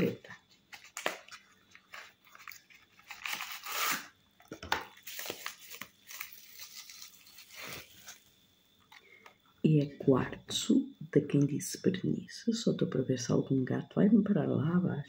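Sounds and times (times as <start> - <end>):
packaging rustling and crinkling: 0.0 - 9.1.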